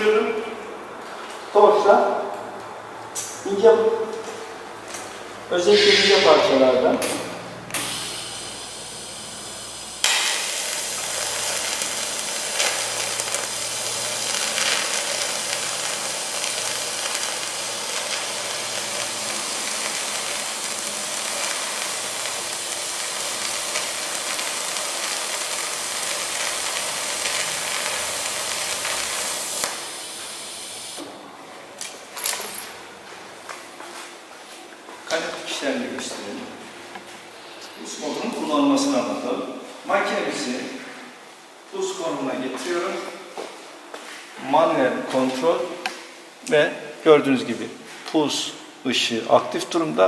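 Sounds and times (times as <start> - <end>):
welding arc hiss: 5.6 - 31.2.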